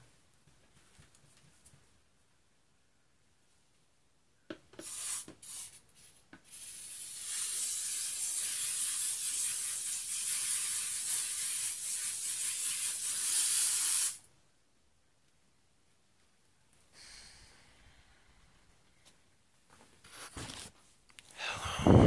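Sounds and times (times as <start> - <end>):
hissing spray: 4.8 - 5.8, 6.5 - 14.3.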